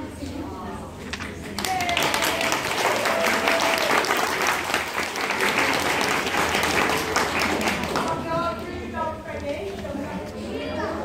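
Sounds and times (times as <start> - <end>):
group clapping hands: 1.2 - 8.3.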